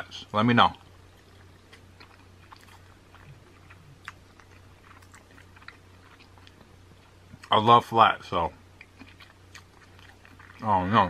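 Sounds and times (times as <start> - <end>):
steady low hum: 0.0 - 11.0
mouth biting and chewing: 1.2 - 7.6, 8.8 - 10.7.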